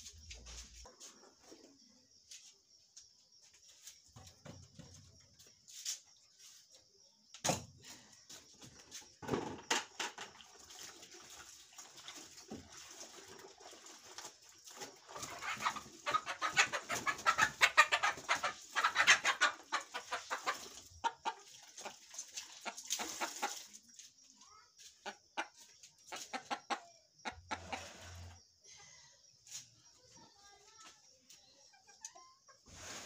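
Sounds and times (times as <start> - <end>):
chickens clucking: 13.2 - 28.7, 31.0 - 33.0
water splashing onto concrete: 21.4 - 24.0.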